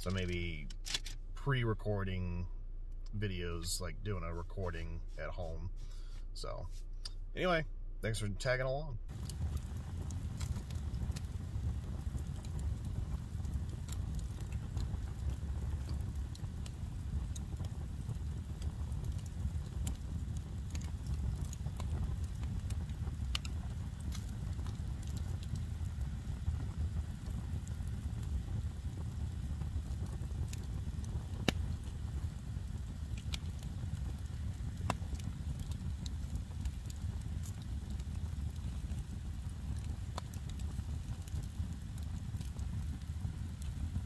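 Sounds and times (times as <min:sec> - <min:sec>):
low rumble: 0:00.0 - 0:15.4
campfire crackling and popping: 0:00.0 - 0:44.0.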